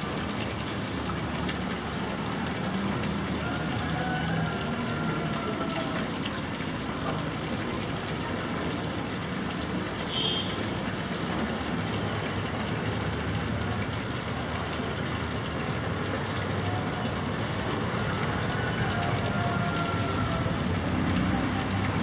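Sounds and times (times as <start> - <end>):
distant traffic rumble: 0.0 - 22.0.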